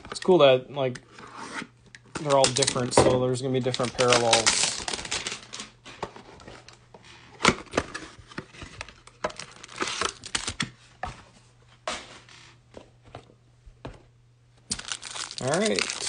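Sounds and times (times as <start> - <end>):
cardboard tearing and crinkling: 3.6 - 5.7, 9.4 - 10.6, 14.7 - 16.0.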